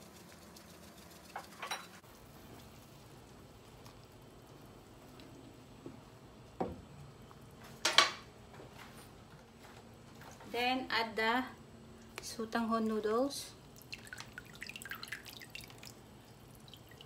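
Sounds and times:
soup simmering: 0:00.0 - 0:07.6.

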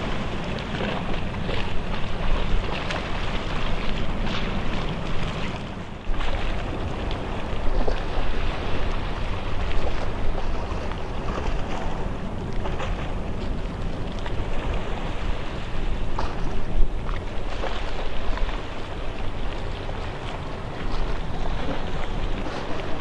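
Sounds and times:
distant boat rushing: 0:00.0 - 0:23.0
wind buffeting microphone: 0:00.0 - 0:23.0.

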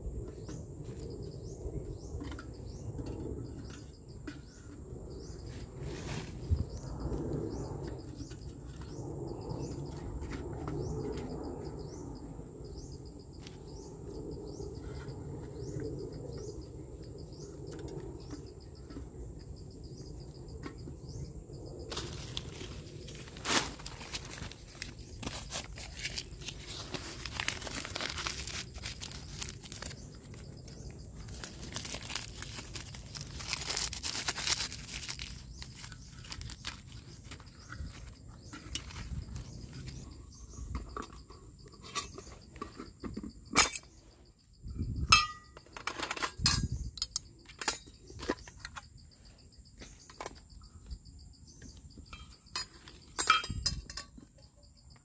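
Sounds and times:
high insect drone: 0:00.0 - 0:55.0
dry leaves crinkling: 0:21.9 - 0:39.9.

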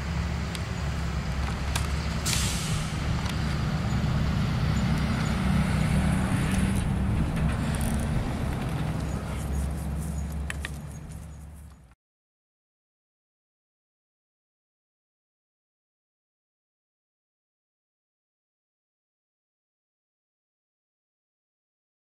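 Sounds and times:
vehicle engine rumbling: 0:00.0 - 0:12.0
short hiss: 0:02.2 - 0:03.0.

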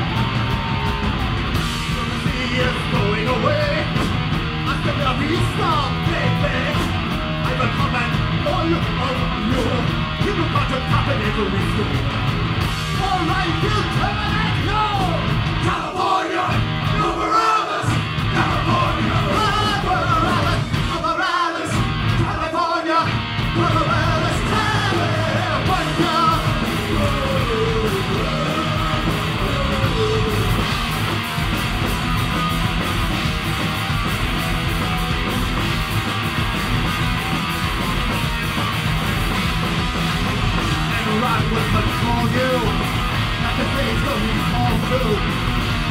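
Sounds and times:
shouted lead vocal: 0:00.0 - 0:12.2, 0:12.8 - 0:31.2, 0:40.6 - 0:45.9
punk rock band playing: 0:00.0 - 0:45.9.

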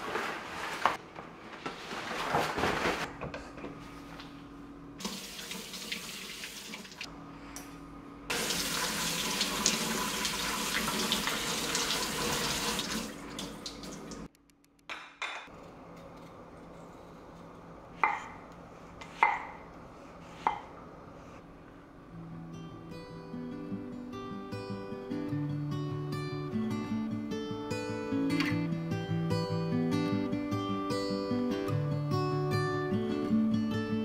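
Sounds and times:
faucet water running: 0:05.0 - 0:07.1, 0:08.3 - 0:14.3.

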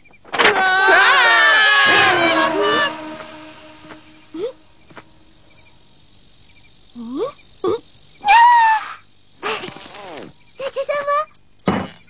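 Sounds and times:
crickets chirping: 0:00.0 - 0:12.0
cartoon cry: 0:00.6 - 0:03.2
short rising squeaks: 0:00.6 - 0:05.3.

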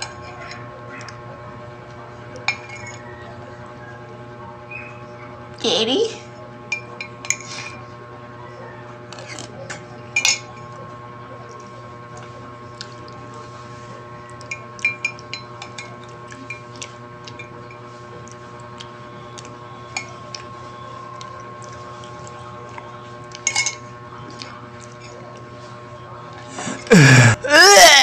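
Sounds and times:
steady background hum: 0:00.0 - 0:28.0
metal spoon clinking in mug: 0:23.4 - 0:23.9.

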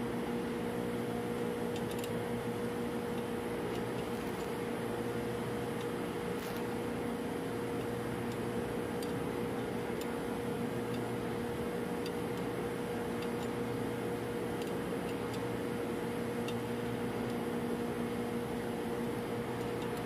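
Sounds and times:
machinery hum: 0:00.0 - 0:20.0
spanner ticking on metal: 0:13.1 - 0:13.6.

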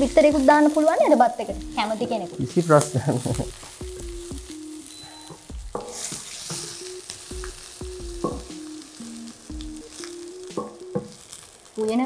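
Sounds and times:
rice sizzling in a pan: 0:00.0 - 0:12.0
wooden spatula knocking a pan: 0:05.3 - 0:06.7, 0:07.4 - 0:08.6, 0:10.5 - 0:11.2.

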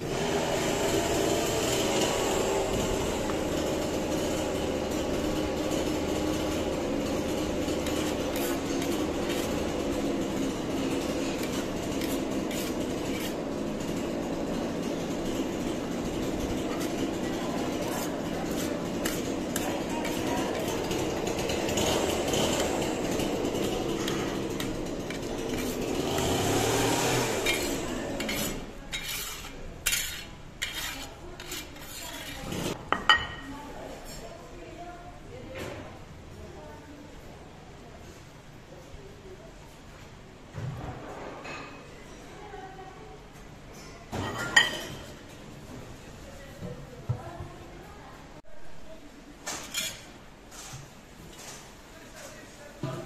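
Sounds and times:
metal skimmer scraping rice: 0:06.4 - 0:32.8.

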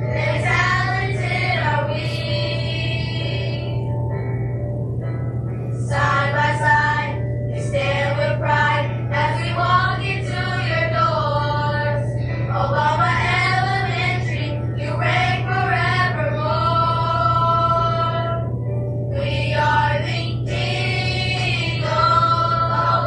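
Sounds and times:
musical accompaniment: 0:00.0 - 0:23.0
steady low drone: 0:00.0 - 0:23.0
children's chorus singing: 0:00.1 - 0:03.6, 0:05.8 - 0:12.0, 0:19.2 - 0:23.0.

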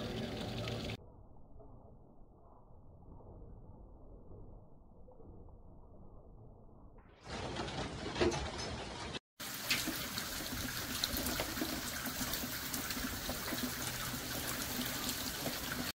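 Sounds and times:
water trickling down rain chain: 0:09.4 - 0:16.0.

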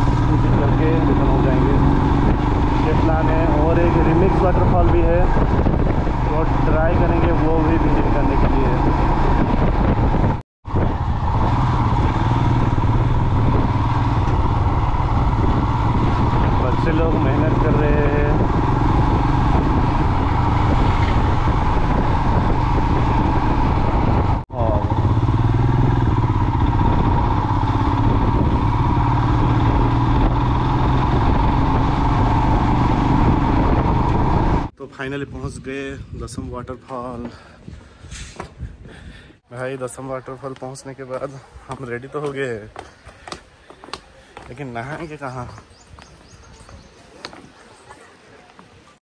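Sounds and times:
motorcycle engine running: 0:00.0 - 0:34.7.

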